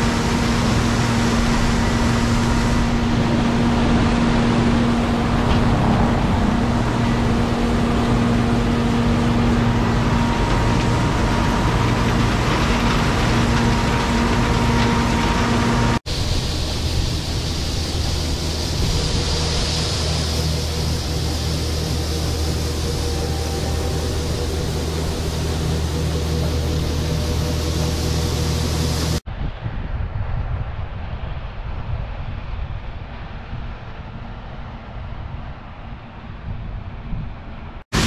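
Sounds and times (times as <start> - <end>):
combine harvester engine hum: 0.0 - 29.2
grain pouring from auger: 0.0 - 29.2.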